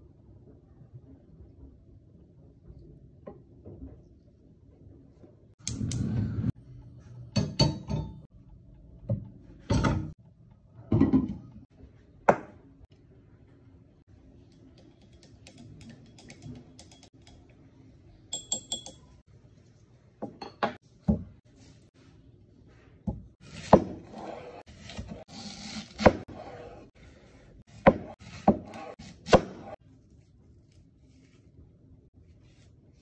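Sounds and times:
skewer clinking a glass: 0:18.3 - 0:19.1.

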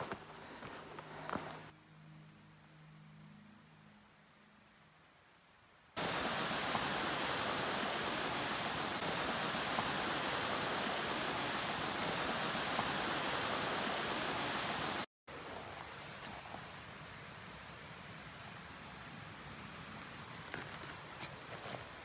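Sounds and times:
rushing creek water: 0:06.0 - 0:22.0.

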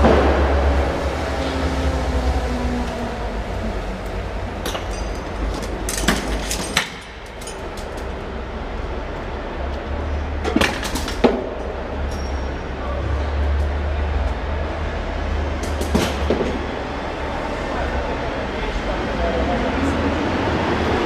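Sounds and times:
sharp knocks and clanks: 0:04.6 - 0:08.2.

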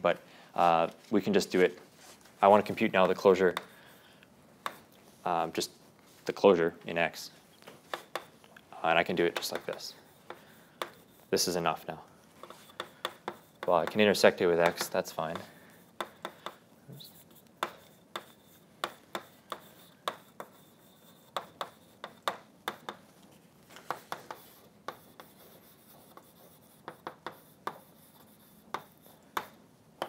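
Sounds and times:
chalk writing on blackboard: 0:02.5 - 0:04.9, 0:07.9 - 0:08.4, 0:09.0 - 0:29.7.

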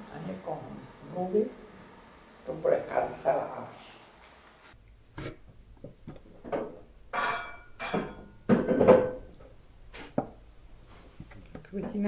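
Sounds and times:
objects clinking and knocking: 0:05.8 - 0:09.5.

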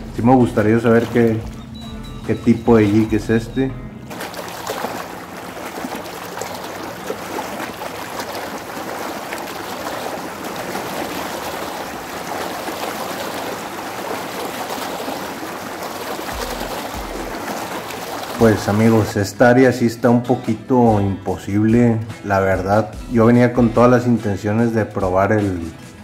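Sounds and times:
small waves lapping on rocks: 0:00.0 - 0:01.6, 0:04.1 - 0:19.2.

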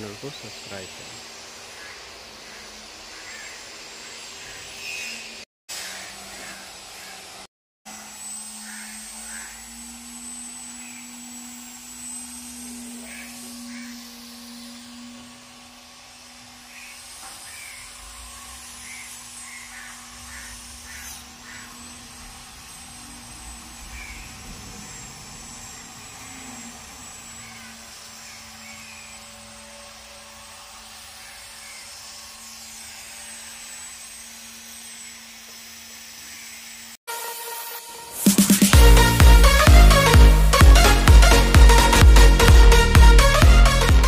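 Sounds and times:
constant low hum: 0:05.9 - 0:35.5
faint high whine: 0:06.1 - 0:38.3
loud electronic music: 0:37.6 - 0:44.0.

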